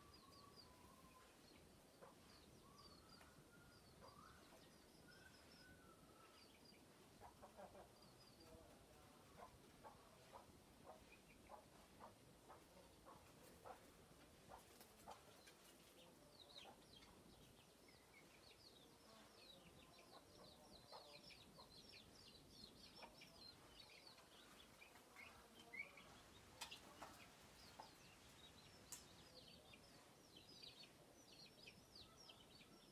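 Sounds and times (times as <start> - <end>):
chicken clucking: 6.2 - 32.8.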